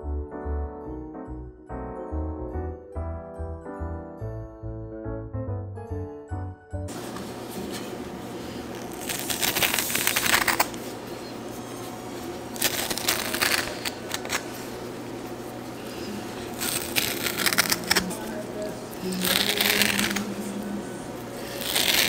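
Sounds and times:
steady low hum: 6.9 - 22.0.

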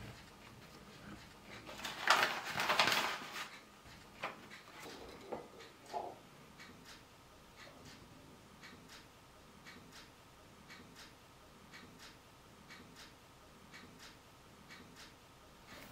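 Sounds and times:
rustling: 0.0 - 3.6.

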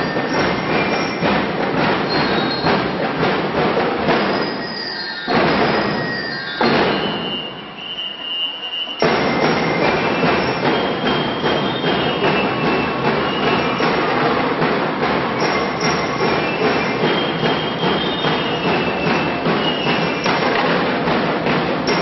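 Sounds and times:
dense drum beat: 0.0 - 4.5, 9.0 - 22.0
ringing bell-lyre notes: 4.5 - 7.4.

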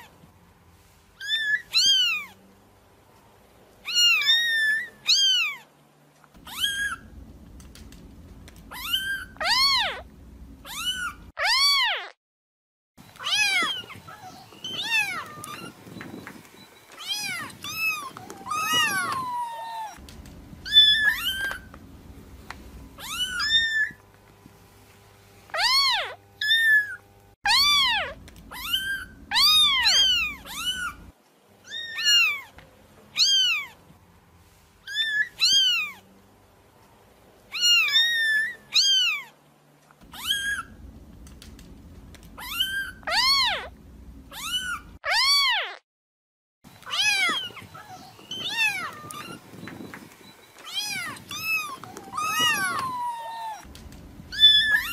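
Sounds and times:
kittens meowing: 1.2 - 2.4, 3.8 - 5.6, 6.4 - 7.9, 8.6 - 12.1, 13.2 - 15.8, 17.0 - 21.8, 23.0 - 24.0, 25.6 - 32.6, 33.2 - 33.8, 34.9 - 36.0, 37.5 - 39.3, 40.0 - 41.6, 42.2 - 45.8, 46.8 - 49.8, 50.6 - 54.9.

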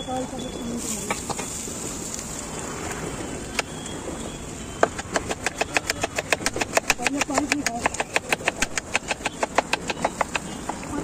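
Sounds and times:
vegetables sizzling in a wok: 0.8 - 2.4
sharp clacks: 4.8 - 10.9.

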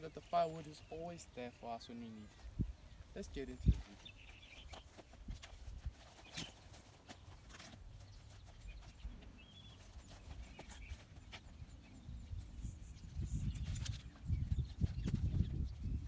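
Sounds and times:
footsteps: 3.2 - 15.4
branches knocking and scraping: 4.6 - 8.0.

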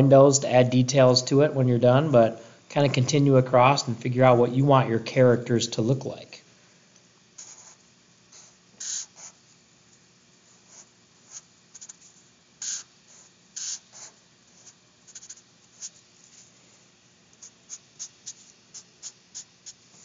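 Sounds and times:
marker drawing on paper: 7.4 - 9.4, 10.5 - 16.5, 17.4 - 20.0.

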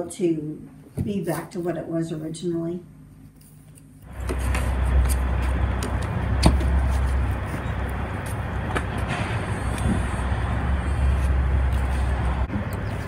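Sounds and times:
low rumble of traffic: 4.0 - 13.0.

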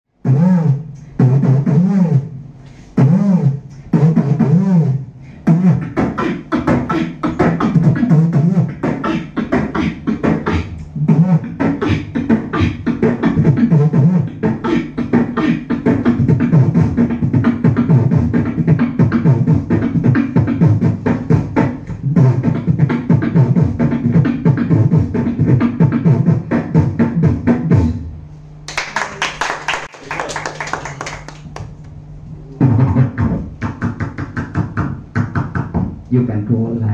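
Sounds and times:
beatboxing mouth beats: 0.1 - 36.3.

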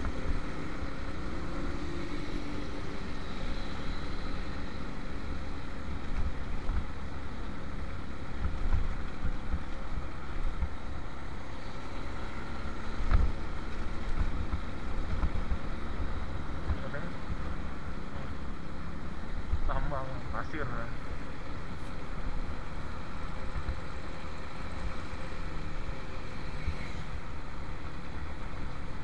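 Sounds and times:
wind rumble on microphone: 0.0 - 11.2, 12.6 - 18.3
motorcycle engine riding: 0.0 - 29.0.

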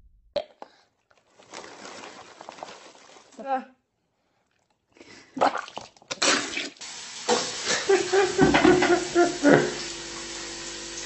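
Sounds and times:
running water: 5.4 - 11.0
sharp knocks and clatters: 8.4 - 9.0.

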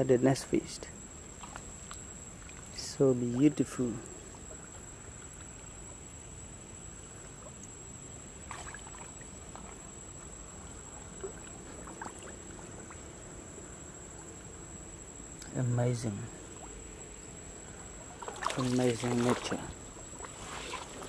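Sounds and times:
low water hiss: 0.0 - 21.0
small water splashes: 1.3 - 5.8, 7.2 - 13.2, 16.4 - 17.1, 17.7 - 21.0.

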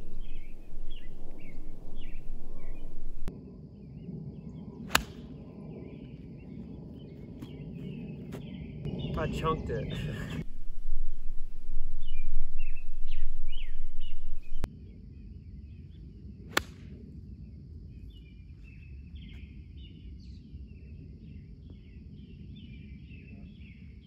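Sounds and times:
birds chirping and singing: 0.0 - 16.5, 17.4 - 24.0
golf club striking ball: 4.9 - 5.2
loud low rushing noise: 10.4 - 14.7.

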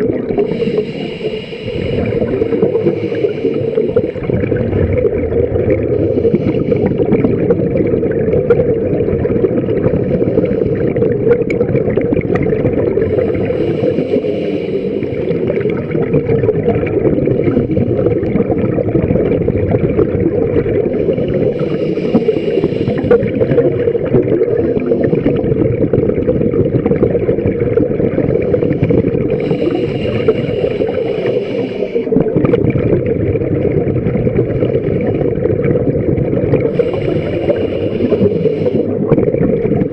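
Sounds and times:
muffled underwater rumble: 0.0 - 39.9
regulator breathing hiss: 0.4 - 4.3, 13.1 - 15.6, 21.1 - 23.6, 28.5 - 32.2, 36.7 - 39.1.

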